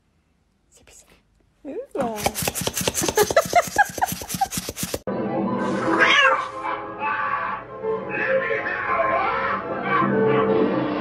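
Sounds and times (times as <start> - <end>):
dog sniffing: 2.0 - 5.0.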